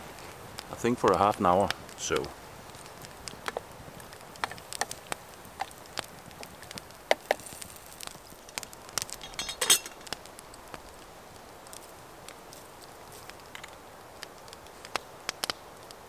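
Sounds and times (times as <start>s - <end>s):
campfire crackling and popping: 0.0s - 16.0s
metal cooking pot clinking: 9.2s - 10.1s.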